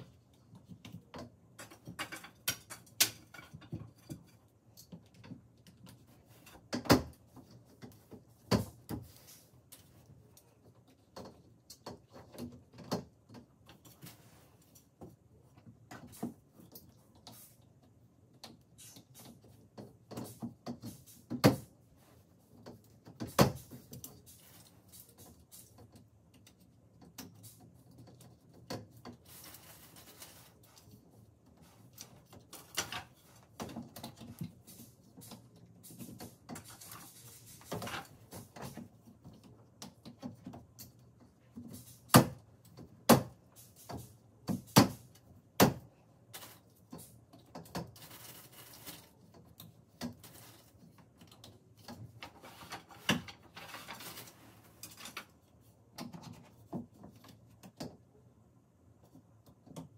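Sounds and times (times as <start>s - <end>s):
wooden slats clicking and knocking: 0.1s - 9.2s, 31.9s - 34.6s, 35.2s - 48.4s.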